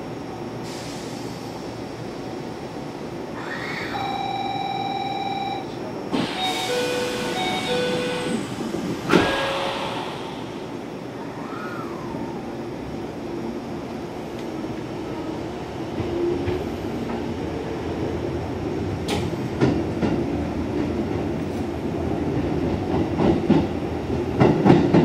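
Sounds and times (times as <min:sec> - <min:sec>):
train rumble: 0:05.6 - 0:25.0.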